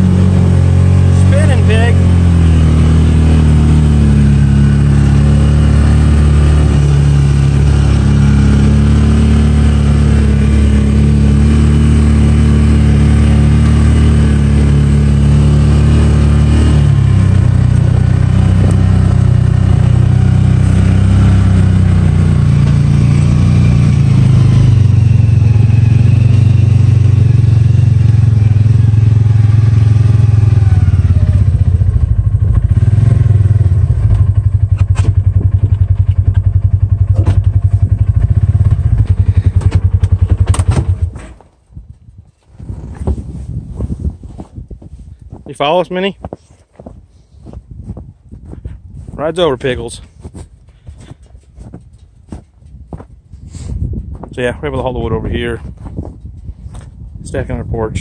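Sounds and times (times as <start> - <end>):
utility vehicle engine running: 0.0 - 41.4.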